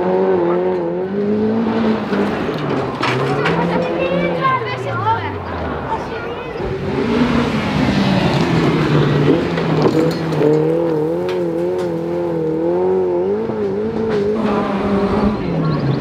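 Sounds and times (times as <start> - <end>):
rally car engine revving: 0.0 - 16.0.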